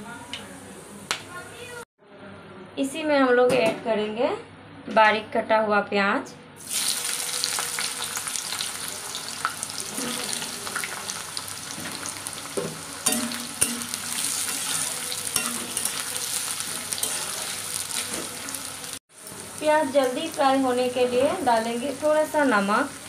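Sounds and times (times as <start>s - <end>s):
onions sizzling in hot oil: 6.6s - 23.0s.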